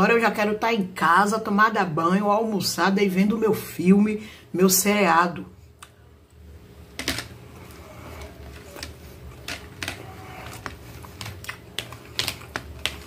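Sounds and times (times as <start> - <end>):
chewing: 7.6 - 13.0.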